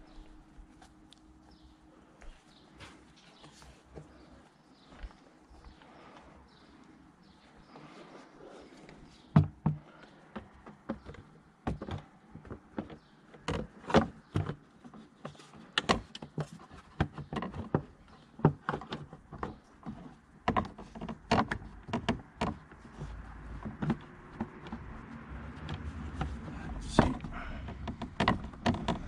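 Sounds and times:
plastic engine cover rattling: 10.4 - 29.0.

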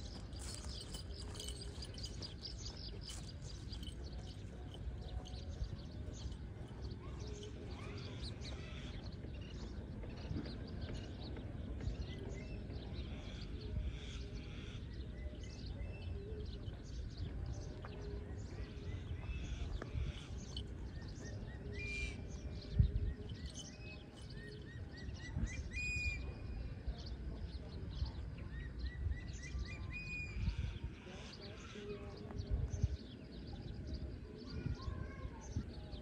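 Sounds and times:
small birds chirping: 0.0 - 36.0.

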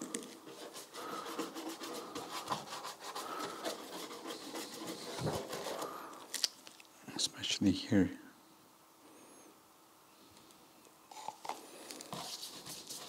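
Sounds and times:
soft paintbrush strokes: 0.3 - 6.2, 12.0 - 13.0.

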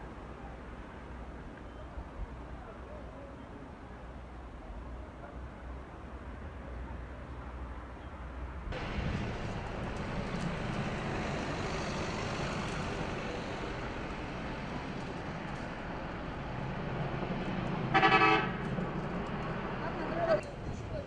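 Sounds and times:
forest fire rushing noise: 8.8 - 21.0.

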